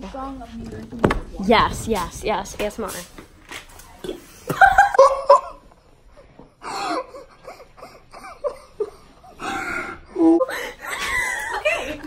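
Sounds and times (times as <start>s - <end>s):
girl laughing hard: 4.5s - 5.6s, 6.6s - 9.5s, 10.2s - 12.0s.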